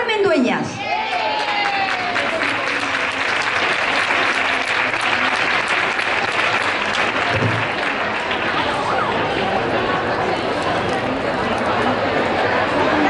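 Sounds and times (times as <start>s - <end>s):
audience applauding: 0.8s - 10.4s.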